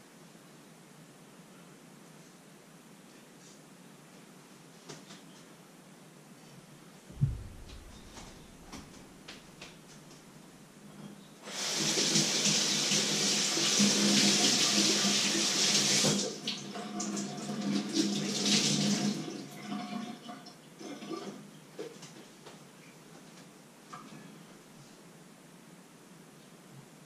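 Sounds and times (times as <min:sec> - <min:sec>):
kitchen water running: 0:11.4 - 0:20.0.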